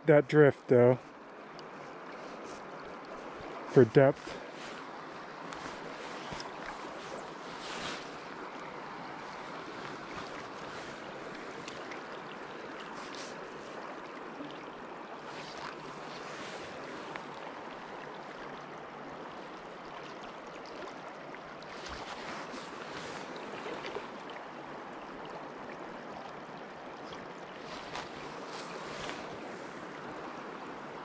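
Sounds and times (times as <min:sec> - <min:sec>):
stream running over rocks: 0:00.0 - 0:31.0
faint rustles: 0:04.2 - 0:08.3, 0:27.6 - 0:29.8.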